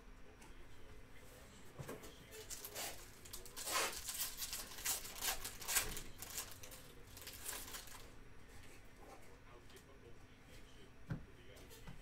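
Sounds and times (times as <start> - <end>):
foil wrapper crinkling and tearing: 2.4 - 8.1.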